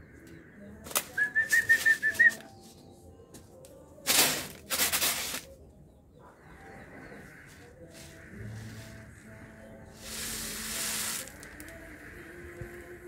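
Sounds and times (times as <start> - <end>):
wing fluttering: 10.0 - 13.0.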